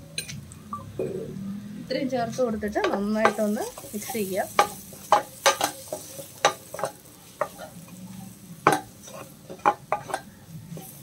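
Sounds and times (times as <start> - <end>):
low sizzle: 0.0 - 11.0
spatula scraping metal pan: 2.8 - 11.0.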